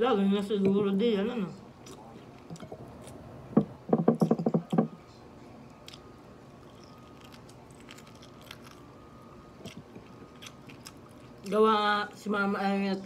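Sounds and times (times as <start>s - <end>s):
biting and chewing meat: 5.7s - 11.6s.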